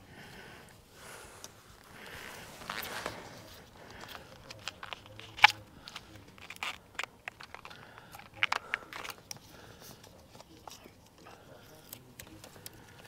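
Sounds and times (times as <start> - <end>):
plastic conduit clicks and crackles: 3.9 - 13.0.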